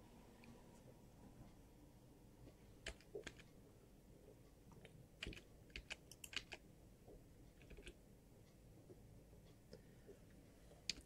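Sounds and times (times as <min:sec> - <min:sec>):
computer keyboard keys clicking: 0:02.8 - 0:03.5, 0:04.8 - 0:06.6, 0:07.6 - 0:08.0.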